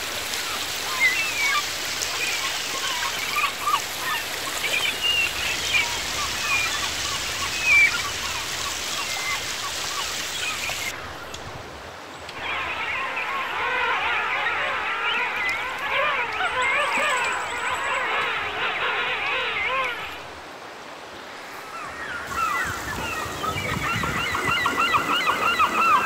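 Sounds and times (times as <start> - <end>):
river water over rocks: 0.0 - 26.0
chorus of animal calls: 12.3 - 20.3, 21.7 - 26.0.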